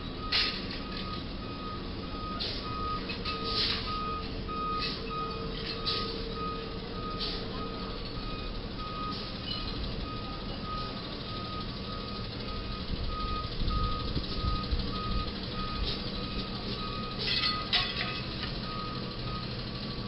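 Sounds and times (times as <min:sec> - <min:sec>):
truck engine running: 0:00.0 - 0:20.0
truck reversing alarm beeping: 0:00.0 - 0:20.0.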